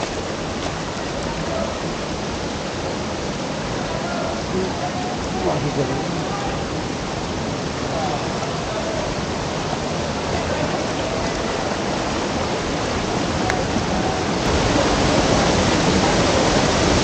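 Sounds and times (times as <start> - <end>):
rushing water of mountain stream: 0.0 - 17.0.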